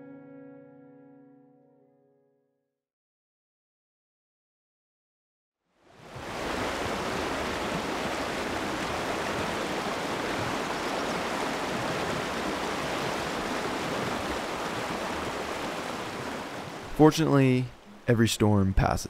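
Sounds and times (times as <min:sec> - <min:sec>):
river rushing over rocks: 0:06.0 - 0:17.0.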